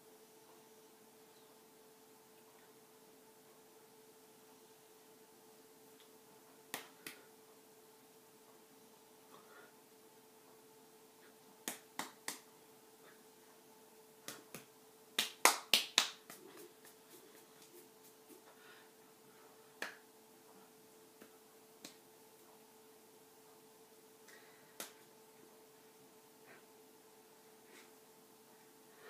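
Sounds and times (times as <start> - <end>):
faint steady hum: 0.0 - 29.0
hands clapping and slapping: 6.7 - 7.2, 11.6 - 12.5, 14.2 - 18.5, 19.8 - 20.0, 21.2 - 22.0, 24.3 - 25.1.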